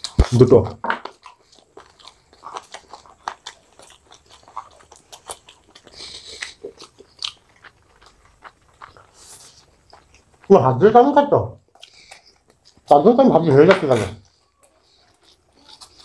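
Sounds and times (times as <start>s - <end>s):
people chewing and crunching food: 0.0s - 16.0s.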